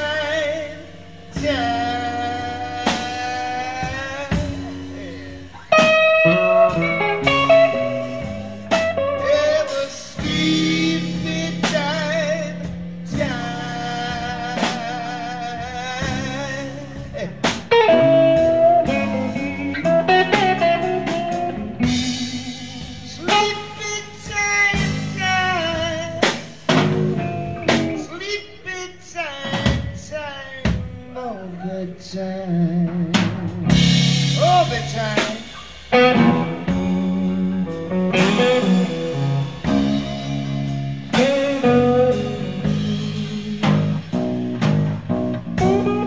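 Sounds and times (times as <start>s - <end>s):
electric guitar lead with vibrato: 0.0s - 28.3s, 32.9s - 46.0s
bass guitar: 0.0s - 46.0s
drum kit: 0.0s - 46.0s.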